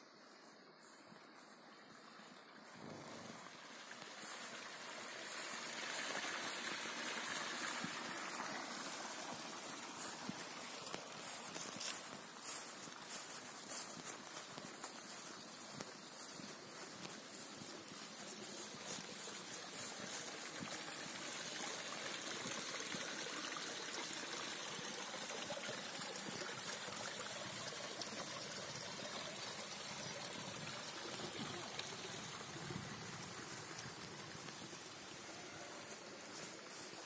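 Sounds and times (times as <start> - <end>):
spring water trickling: 1.1 - 37.0.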